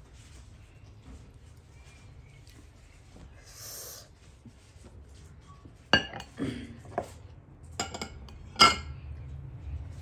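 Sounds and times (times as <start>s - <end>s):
glass bowl clinking on dishes: 5.9s - 7.0s, 7.8s - 9.0s.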